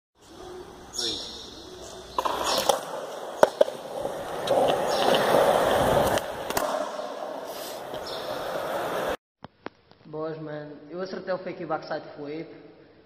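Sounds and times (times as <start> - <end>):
skateboard wheels rolling on concrete: 0.2 - 9.2
skateboard clacking on ground: 1.8 - 9.2.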